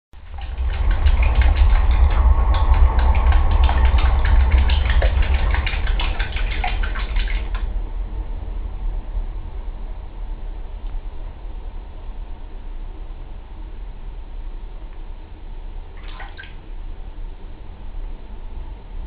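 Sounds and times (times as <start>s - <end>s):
steady low rumble: 0.1s - 19.0s
cat paws splashing water: 0.2s - 7.7s, 16.0s - 16.6s.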